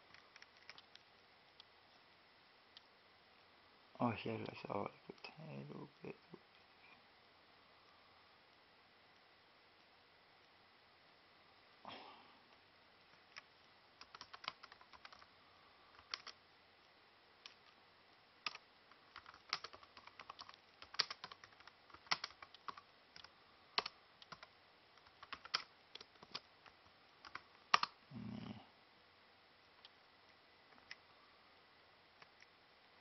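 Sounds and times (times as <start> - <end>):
laptop keyboard typing: 0.0 - 1.1, 13.2 - 15.3, 15.9 - 16.4, 18.4 - 28.0.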